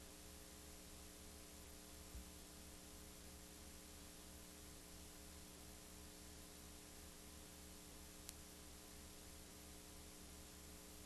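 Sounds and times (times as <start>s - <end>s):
faint electrical hum: 0.0s - 11.0s
recording hiss: 0.0s - 11.0s
faint click: 8.2s - 8.5s.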